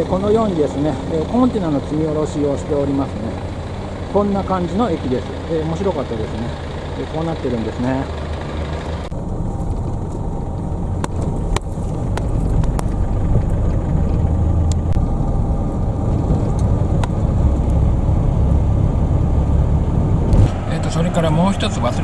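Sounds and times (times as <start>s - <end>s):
truck engine and road rumble: 0.0s - 22.0s.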